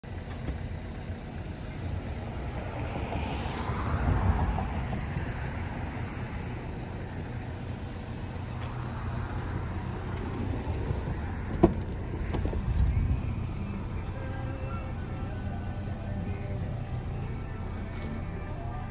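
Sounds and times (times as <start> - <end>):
road traffic rumble: 0.0 - 18.9
vehicle passing: 1.8 - 15.4.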